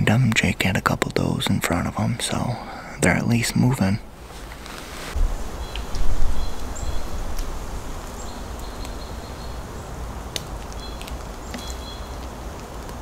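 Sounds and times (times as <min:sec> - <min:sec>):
small birds calling: 0:05.4 - 0:13.0.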